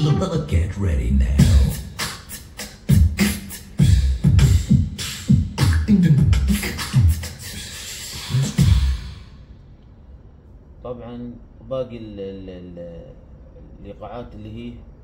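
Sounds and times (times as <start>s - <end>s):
beatbox drum pattern: 0.0s - 9.4s.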